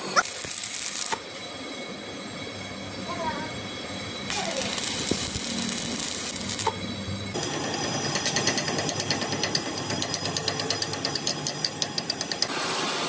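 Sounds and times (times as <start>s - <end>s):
angle grinder on weld: 0.0s - 1.3s, 4.3s - 13.0s.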